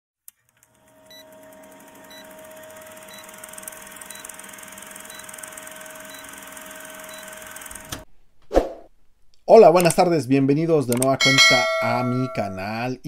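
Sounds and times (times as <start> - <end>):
film projector whirring: 0.3 - 8.1.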